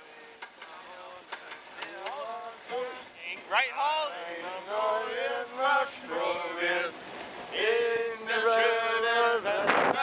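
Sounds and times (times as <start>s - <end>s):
men singing: 0.0s - 10.0s.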